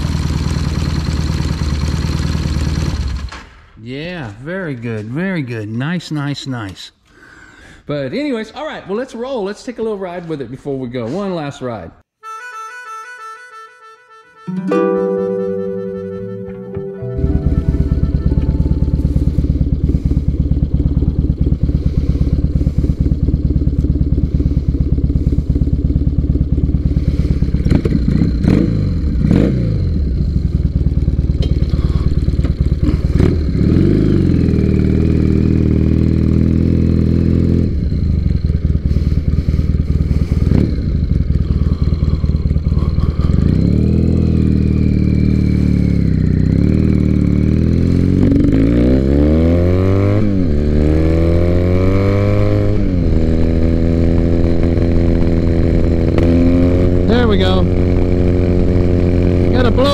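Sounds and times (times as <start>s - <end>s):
motorcycle engine idling and revving: 0.0s - 3.6s, 17.2s - 59.9s.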